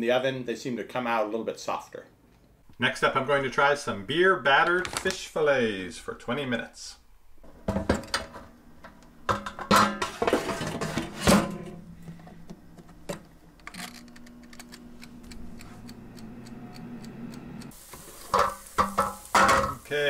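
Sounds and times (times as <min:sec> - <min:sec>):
fan humming: 0:02.6 - 0:20.0
air fryer basket knocks and clunks: 0:07.5 - 0:08.4
dials clicking: 0:13.6 - 0:17.7.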